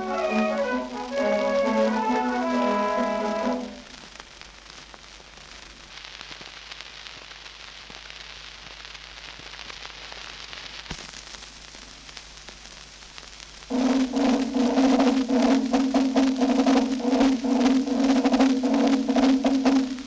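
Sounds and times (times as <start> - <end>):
record hiss and crackle: 0.0 - 20.0
low steady hum: 13.7 - 20.0.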